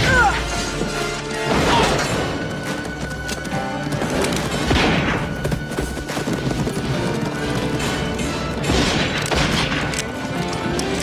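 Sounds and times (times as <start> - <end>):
dramatic orchestral film music: 0.0 - 11.0
horses' hoofbeats: 0.9 - 8.7
gunshots: 4.5 - 5.5, 7.4 - 10.2.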